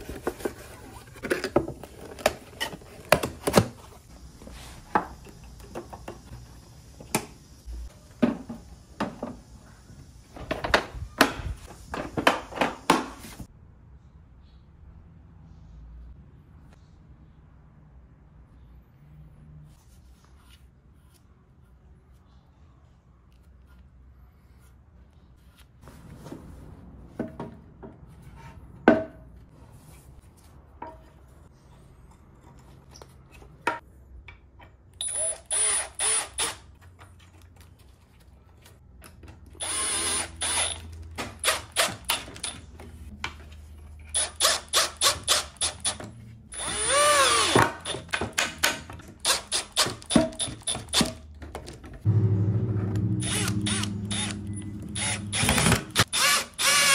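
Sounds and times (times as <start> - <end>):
cordless drill driving screws: 35.0 - 36.6, 39.6 - 40.8, 44.2 - 48.0, 53.2 - 56.9.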